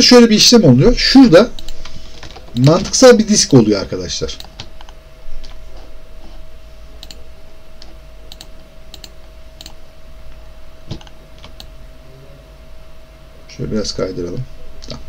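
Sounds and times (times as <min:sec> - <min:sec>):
faint steady hum: 0:00.0 - 0:15.0
keyboard and mouse clicks: 0:01.6 - 0:03.6, 0:04.4 - 0:05.6, 0:07.0 - 0:07.2, 0:07.8 - 0:09.8, 0:10.9 - 0:11.7.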